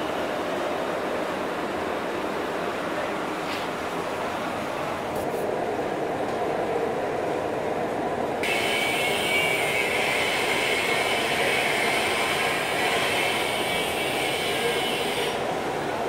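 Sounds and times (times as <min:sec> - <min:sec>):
machinery and fan din: 0:00.0 - 0:16.0
welding arc hissing: 0:08.4 - 0:15.4.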